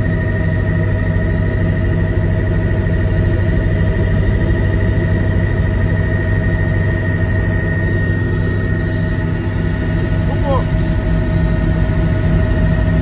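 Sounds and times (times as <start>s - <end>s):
helicopter engine and rotor drone: 0.0s - 13.0s
high whine: 0.0s - 13.0s.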